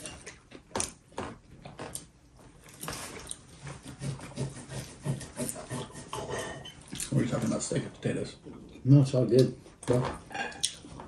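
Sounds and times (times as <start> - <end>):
soft chewing: 0.0 - 11.0
cutlery clinking on plates: 6.1 - 7.0.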